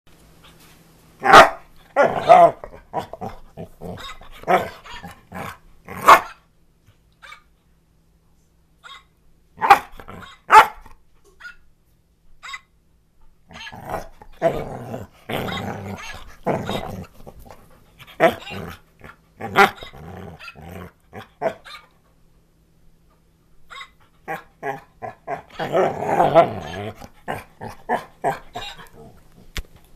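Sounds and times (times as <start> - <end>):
dog barking: 1.2 - 2.6, 6.0 - 6.4, 8.8 - 10.8
dog growling: 1.2 - 6.3, 13.5 - 21.6, 24.2 - 29.5.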